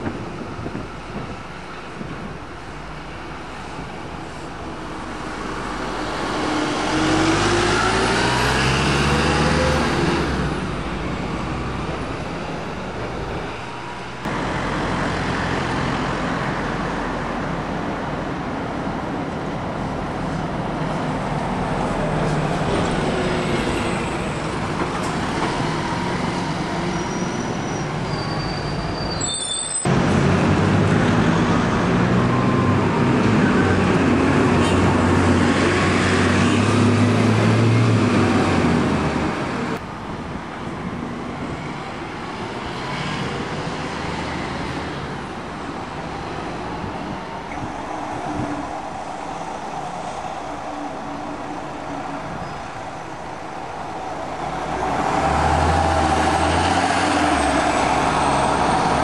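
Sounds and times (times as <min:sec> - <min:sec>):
bus engine running close by: 0:00.0 - 0:29.1, 0:29.9 - 0:59.0
bus accelerating: 0:00.0 - 0:59.0
street traffic: 0:00.0 - 0:59.0.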